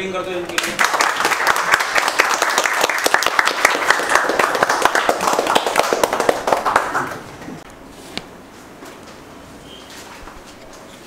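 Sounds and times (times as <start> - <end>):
group applauding: 0.4 - 7.6.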